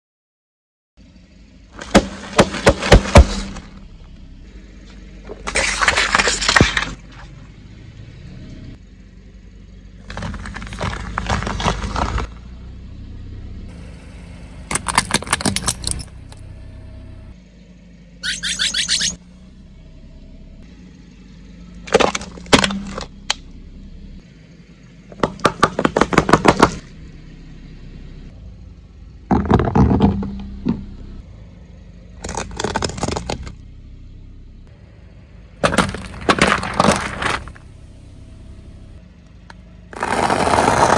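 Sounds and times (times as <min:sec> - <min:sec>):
low car rumble: 0:01.0 - 0:40.9
tyre crushing plastic: 0:01.8 - 0:03.7, 0:10.1 - 0:12.3, 0:35.6 - 0:37.6.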